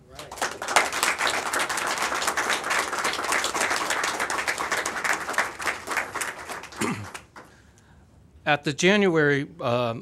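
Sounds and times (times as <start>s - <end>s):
crowd applauding: 0.1s - 7.6s.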